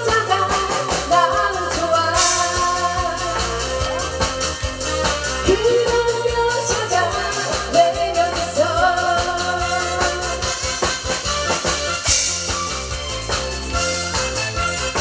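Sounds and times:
steady drum beat: 0.0 - 15.0.

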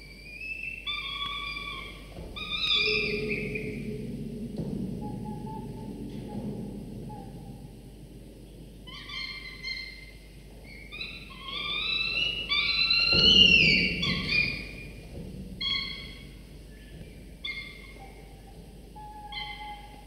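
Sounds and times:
falcon chicks wailing begging calls: 0.6 - 7.6, 8.9 - 14.8.

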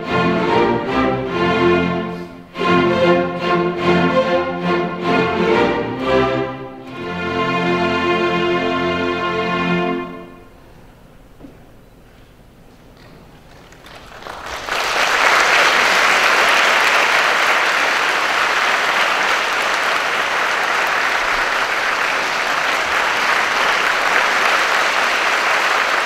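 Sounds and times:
audience applauding: 13.2 - 26.0.

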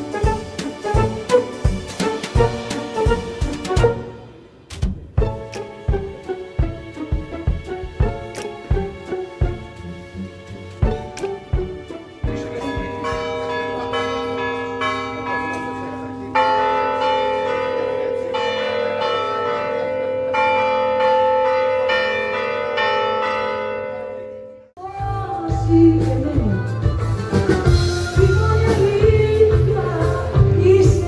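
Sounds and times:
bells ringing: 10.8 - 24.6.

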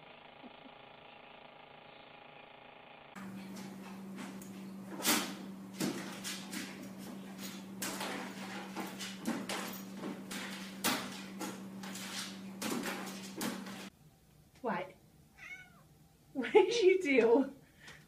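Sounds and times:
steady low hum: 3.2 - 15.4.

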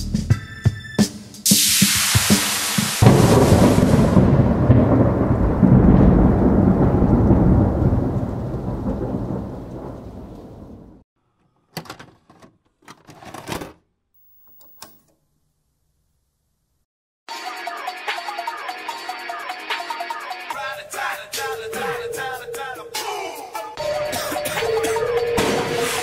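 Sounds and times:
thunder crack and rumble: 3.0 - 11.0.

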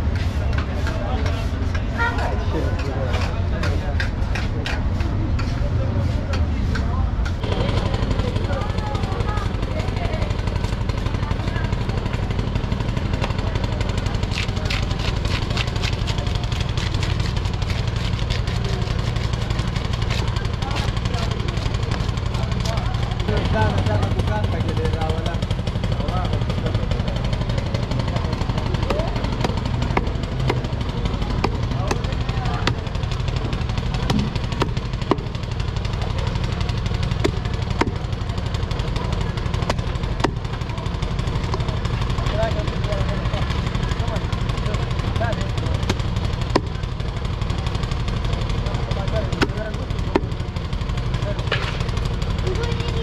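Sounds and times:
engine idling: 6.2 - 53.0
sharp clattering knocks: 28.8 - 38.2.

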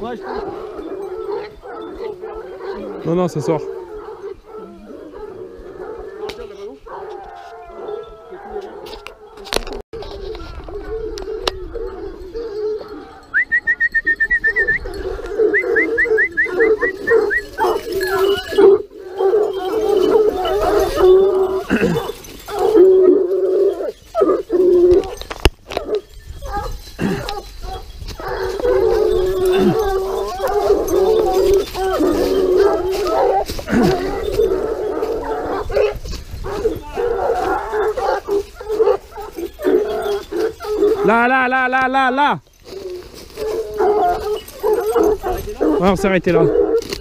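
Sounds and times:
hounds baying and howling: 0.0 - 47.0.

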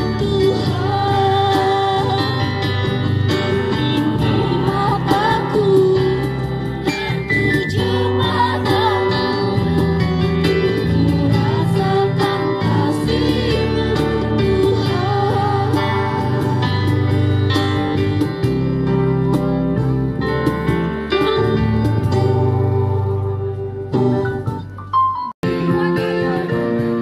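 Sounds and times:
instrumental accompaniment: 0.0 - 27.0
group singing religious song: 3.6 - 16.8.

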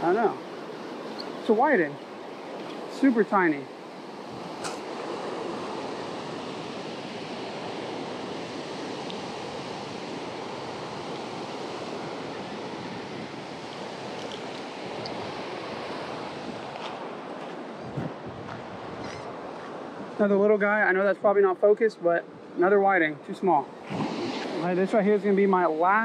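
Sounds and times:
surf breaking on beach: 23.8 - 25.0.

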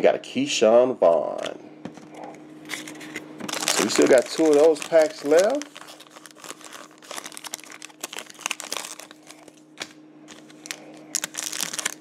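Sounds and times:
faint steady hum: 0.0 - 12.0
foil wrapper crinkling: 2.6 - 12.0.

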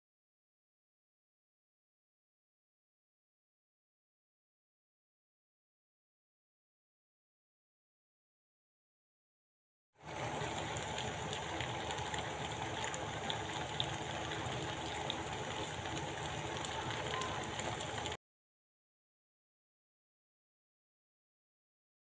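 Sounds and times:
food sizzling in a frying pan: 10.0 - 18.2.

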